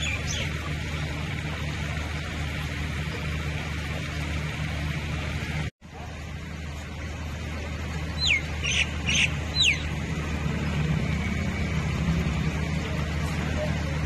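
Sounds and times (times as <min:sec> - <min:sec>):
floodwater rushing: 0:00.0 - 0:14.0
bird whistling calls: 0:08.2 - 0:09.9.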